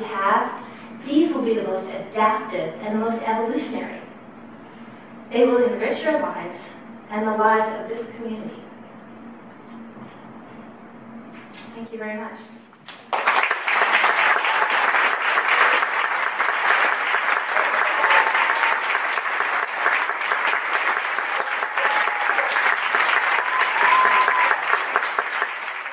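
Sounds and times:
crowd applauding: 12.8 - 25.9.

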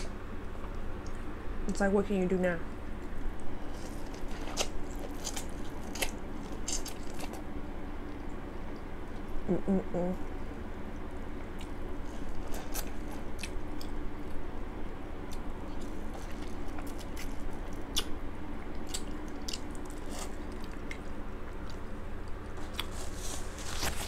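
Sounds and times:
low steady hum: 0.0 - 24.0
person chewing and biting: 3.2 - 8.3, 11.1 - 14.4, 15.2 - 24.0.

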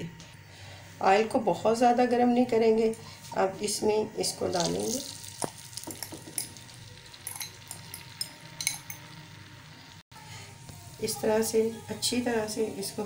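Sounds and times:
egg sizzling in pan: 4.4 - 13.0.

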